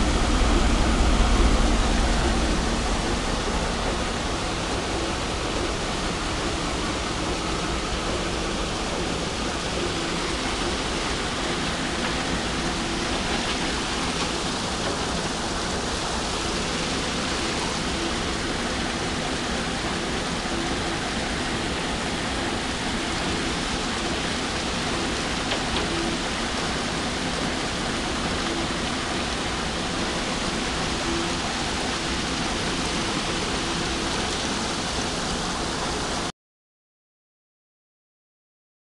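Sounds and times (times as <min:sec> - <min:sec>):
water rushing over sluices: 0:00.0 - 0:36.3.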